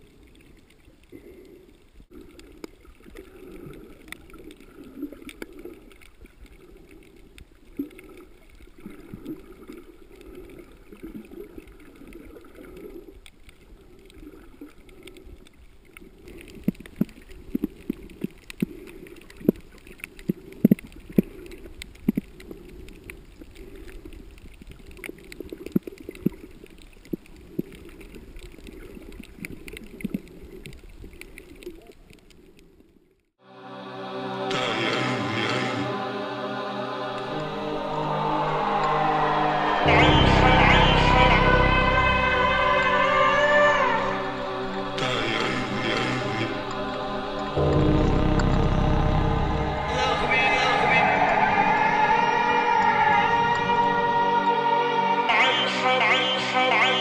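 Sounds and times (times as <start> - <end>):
sharp clicks and crackles: 0.0 - 32.9
muffled underwater rush: 34.2 - 57.0.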